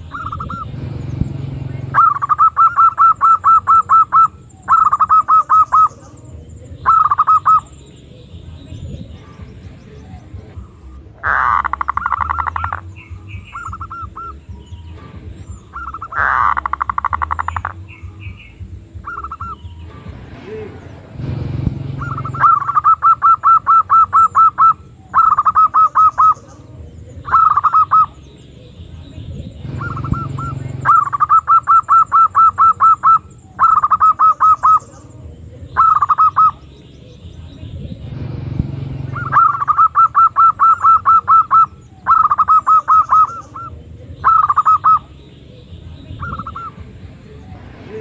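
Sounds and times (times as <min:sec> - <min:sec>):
low rumble: 0:00.0 - 0:02.3, 0:07.7 - 0:22.8, 0:28.1 - 0:31.3, 0:36.6 - 0:39.9
dove cooing: 0:00.0 - 0:38.0, 0:39.0 - 0:48.0
dove rolling trills: 0:00.0 - 0:48.0.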